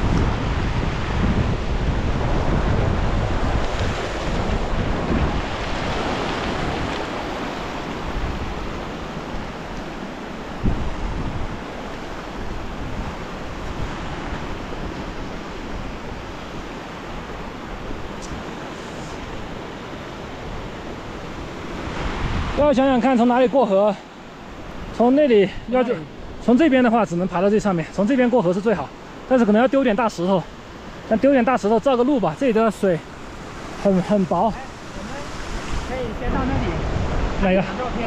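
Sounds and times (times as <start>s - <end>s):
wind buffeting microphone: 0.0s - 23.1s, 32.6s - 38.0s
stream rushing: 0.0s - 38.0s.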